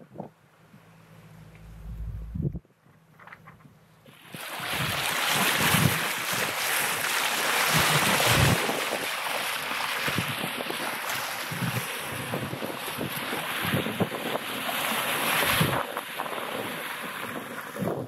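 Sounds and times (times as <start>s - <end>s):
wind buffeting microphone: 1.4s - 2.7s, 9.9s - 18.0s
water splashing along boat bow: 3.0s - 18.0s.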